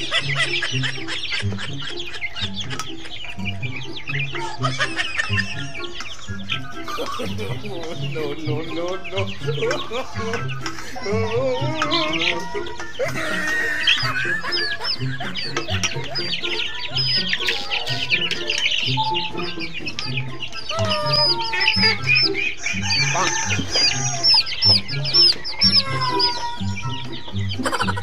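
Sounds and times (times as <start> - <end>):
background music with steady beat: 0.0 - 28.0
chicks peeping: 0.0 - 28.0
clucking: 0.0 - 28.0.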